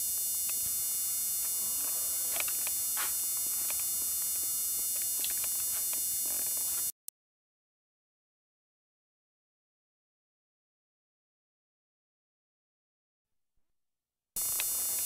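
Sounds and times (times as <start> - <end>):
high whining tones: 0.0 - 7.0, 14.4 - 15.0
steady electrical buzz: 0.0 - 7.0, 14.4 - 15.0.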